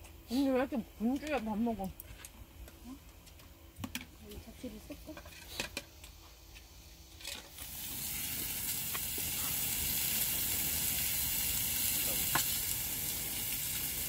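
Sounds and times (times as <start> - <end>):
meat sizzling in grill pan: 7.6 - 14.0.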